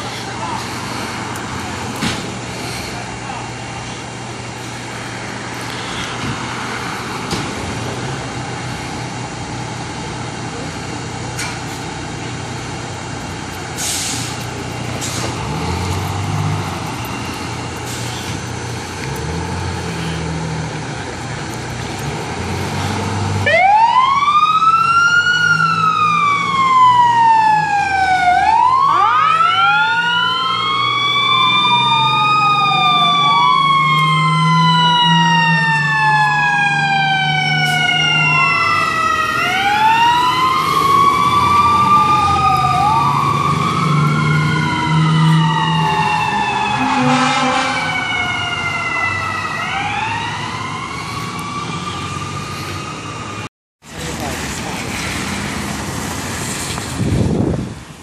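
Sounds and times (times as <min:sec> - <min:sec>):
diesel engines running: 0:00.0 - 0:58.0
sirens wailing: 0:12.1 - 0:57.8.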